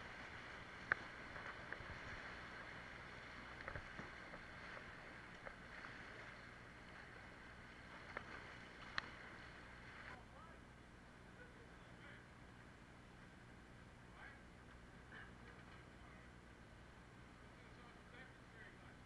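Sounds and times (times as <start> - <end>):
river water rushing: 0.0 - 10.2.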